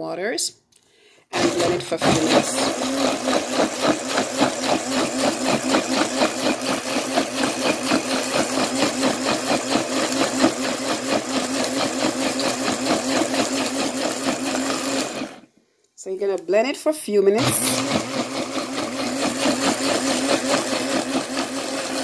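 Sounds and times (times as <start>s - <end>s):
blender motor humming: 1.3s - 15.5s, 17.4s - 22.0s.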